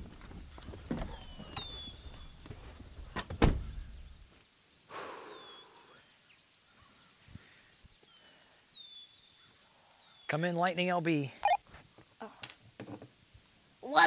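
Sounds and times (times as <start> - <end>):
pulsing insect call: 0.0 - 10.5
bird chirps: 0.0 - 11.6
truck door shutting: 3.1 - 4.0.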